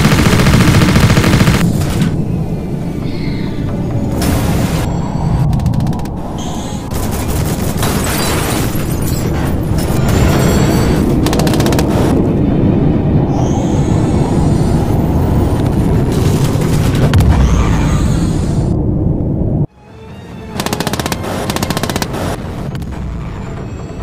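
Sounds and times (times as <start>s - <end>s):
machine-gun fire: 0.0s - 1.7s, 20.6s - 22.4s
steady low rumble: 0.0s - 8.0s, 11.0s - 19.7s.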